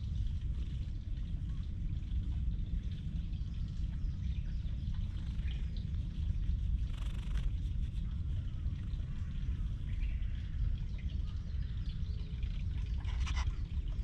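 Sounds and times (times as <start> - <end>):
birds chirping faintly: 0.3 - 14.0
cat purring: 5.1 - 8.0.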